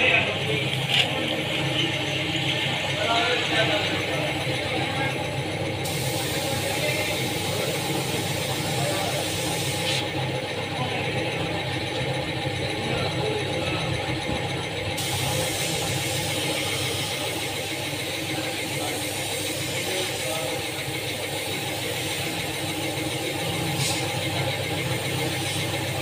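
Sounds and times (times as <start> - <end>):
steady machine hum: 0.0 - 26.0
spray paint gun hissing: 5.8 - 10.2, 15.0 - 26.0.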